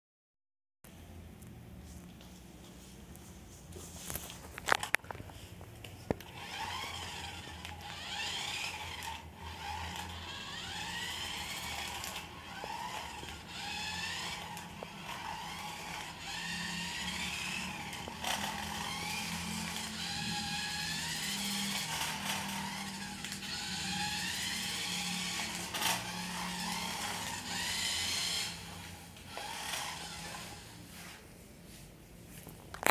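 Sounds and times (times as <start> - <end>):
toy car motor whirring: 6.1 - 30.8.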